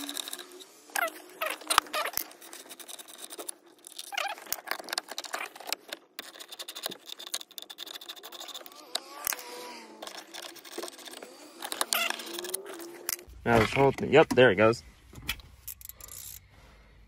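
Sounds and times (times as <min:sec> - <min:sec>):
short falling squeaks: 0:00.0 - 0:02.3, 0:11.8 - 0:13.1.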